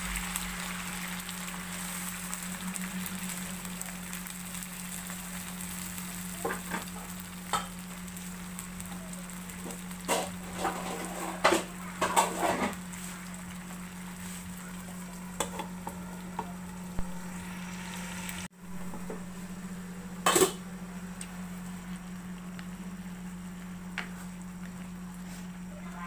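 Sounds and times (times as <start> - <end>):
low hum: 0.0 - 6.1, 13.2 - 26.0
chicken sizzling in a pan: 0.0 - 26.0
spatula scraping a pan: 10.0 - 13.3.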